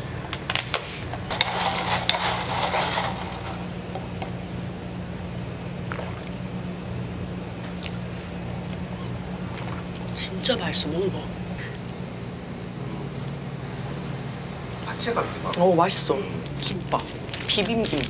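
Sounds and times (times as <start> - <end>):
steady low hum: 0.0 - 18.0
ice rattling in a plastic cup: 1.3 - 3.6, 17.0 - 18.0.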